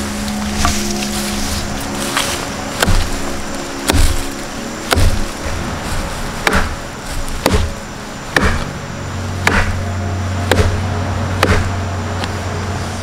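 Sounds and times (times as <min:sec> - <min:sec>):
blade chopping log: 0:02.8 - 0:03.2, 0:03.8 - 0:05.3, 0:06.4 - 0:08.7, 0:09.4 - 0:09.8, 0:10.5 - 0:10.8, 0:11.4 - 0:11.7.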